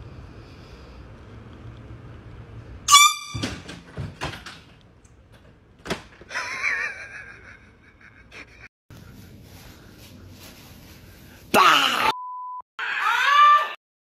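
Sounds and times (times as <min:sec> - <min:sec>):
loud shrill blast: 0:02.9 - 0:03.6.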